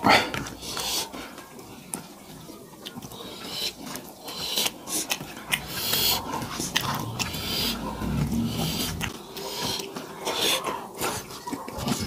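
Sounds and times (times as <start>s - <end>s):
wet chewing and lip-smacking: 2.8s - 8.2s.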